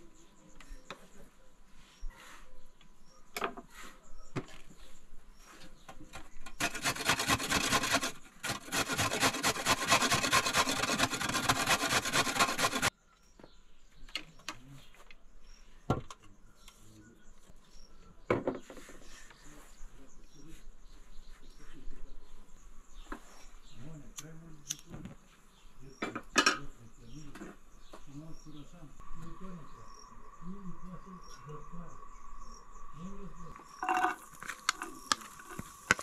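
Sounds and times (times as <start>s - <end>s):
carrot grated on metal grater: 6.6s - 12.9s.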